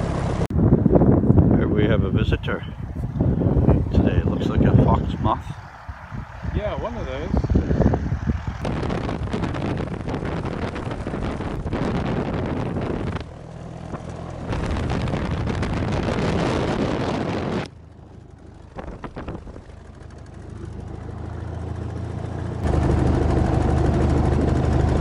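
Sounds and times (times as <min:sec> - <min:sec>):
wind on microphone: 0:00.0 - 0:17.7, 0:18.3 - 0:20.5
biplane engine running: 0:00.0 - 0:25.0.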